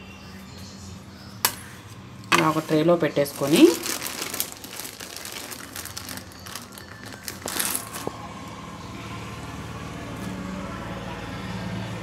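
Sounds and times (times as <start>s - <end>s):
plastic bag rustling: 2.3s - 8.2s.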